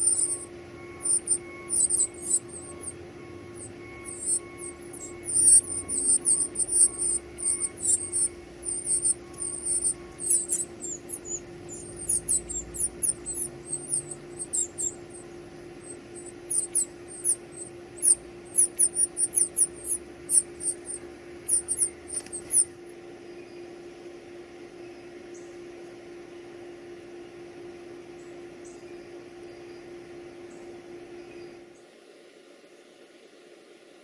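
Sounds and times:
nestlings begging peeps: 0.0 - 22.8
faint steady hum: 0.0 - 34.0.

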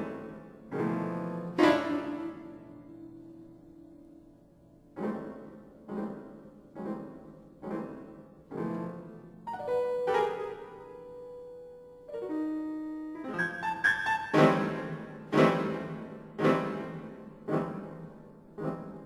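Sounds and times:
grand piano playing: 0.0 - 19.0.

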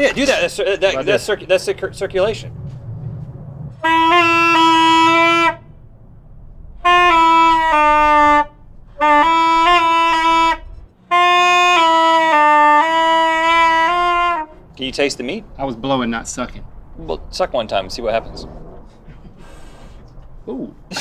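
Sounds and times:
saxophone long held notes: 3.8 - 5.7, 6.8 - 14.6.

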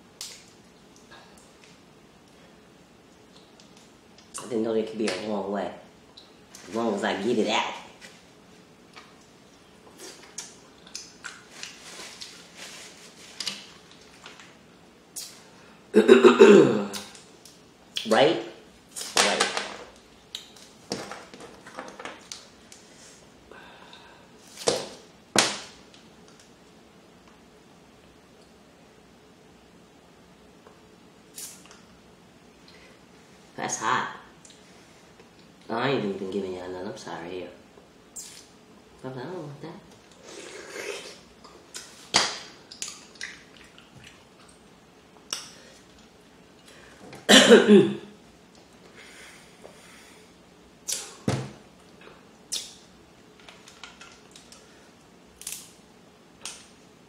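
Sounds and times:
crab shell cracking: 55.4 - 55.7.

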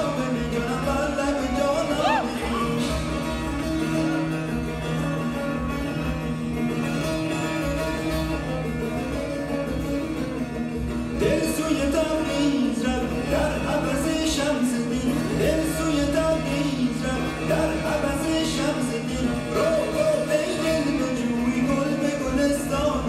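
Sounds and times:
person singing: 0.0 - 3.6, 11.2 - 23.0
plucked string instruments: 0.0 - 23.0.

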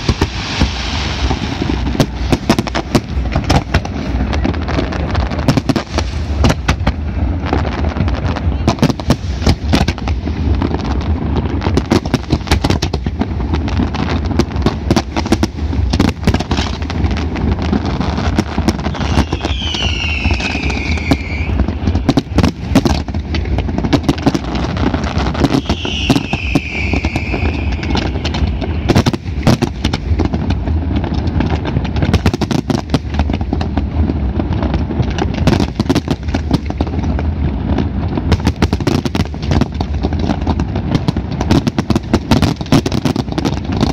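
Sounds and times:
fireworks bangs and crackles: 0.0 - 43.9
firework whistles falling in pitch: 18.8 - 21.7, 25.2 - 29.0.

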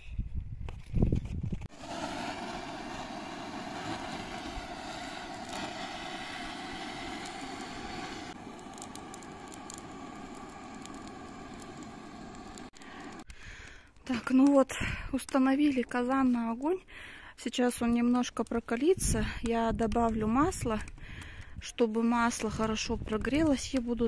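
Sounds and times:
gas torch hissing: 1.7 - 13.7.

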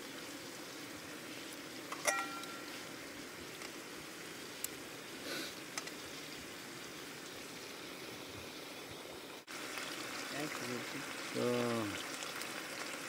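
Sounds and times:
frying pan hissing: 0.0 - 13.0
ringing metal clink: 2.0 - 2.7.

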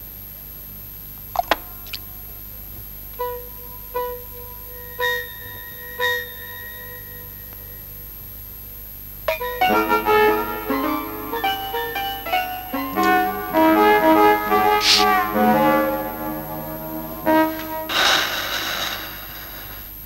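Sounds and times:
instrumental music: 3.1 - 7.8, 9.3 - 18.6.

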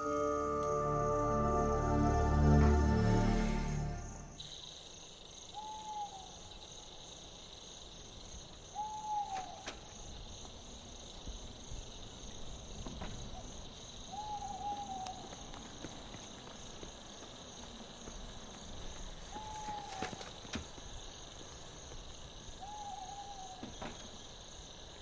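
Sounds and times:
crickets chirping: 0.0 - 25.0
owl hooting: 5.6 - 6.3, 8.8 - 9.6, 14.1 - 15.2, 22.6 - 23.6.

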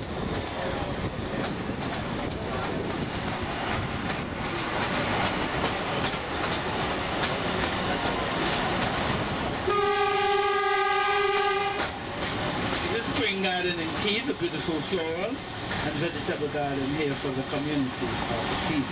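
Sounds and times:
train rumble and rail clatter: 0.0 - 18.9
locomotive horn blast: 9.6 - 12.0.

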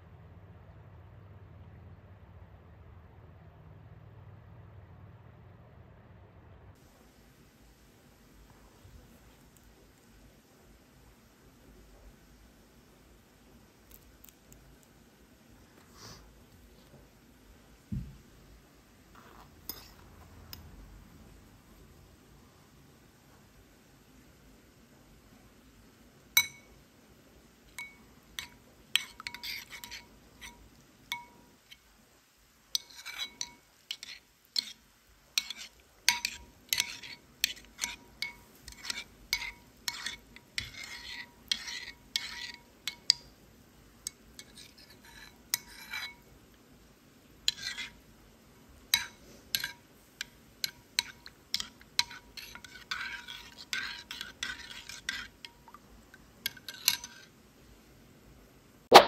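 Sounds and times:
metal spoon clinking in bowl: 26.4 - 26.8, 27.7 - 31.8, 32.7 - 34.8, 35.4 - 43.3, 44.0 - 46.3, 48.9 - 55.8, 56.4 - 57.3.

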